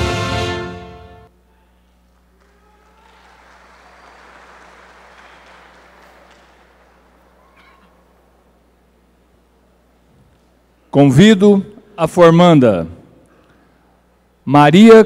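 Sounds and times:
steady low hum: 0:00.6 - 0:15.0
audience applauding: 0:02.1 - 0:08.5
high-pitched calls from crowd: 0:02.4 - 0:08.6.

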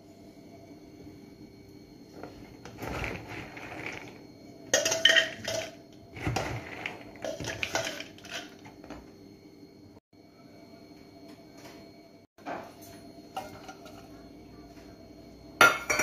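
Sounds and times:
metal spoon scraping plastic bowl: 0:02.2 - 0:04.2, 0:05.2 - 0:08.6.

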